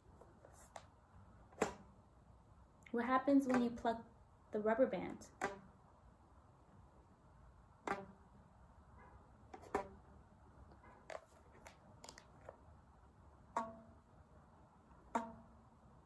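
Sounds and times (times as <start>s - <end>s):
plucked rubber band twang: 1.6s - 2.0s, 5.3s - 5.8s, 7.8s - 8.3s, 9.5s - 10.1s, 13.5s - 14.1s, 15.1s - 15.6s.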